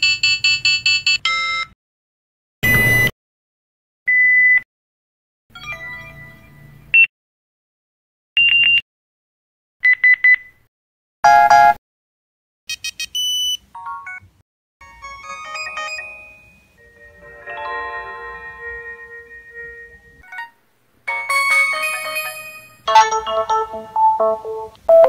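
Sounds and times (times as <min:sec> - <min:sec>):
phone battery alert tones: 0:02.6 - 0:03.1, 0:23.0 - 0:25.0
phone jingle: 0:15.0 - 0:18.8, 0:21.1 - 0:25.0.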